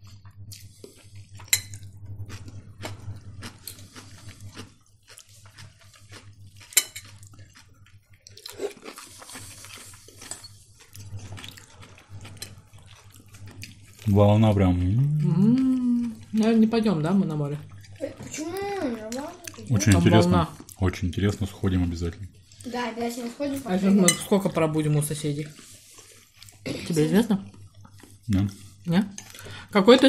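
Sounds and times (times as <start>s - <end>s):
cutlery clinking against plates: 1.4s - 1.9s, 6.6s - 7.2s.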